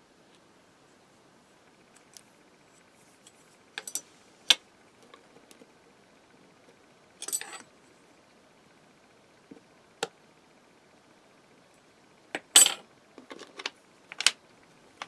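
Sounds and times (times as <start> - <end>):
small metal pieces clinking: 7.2 - 7.6.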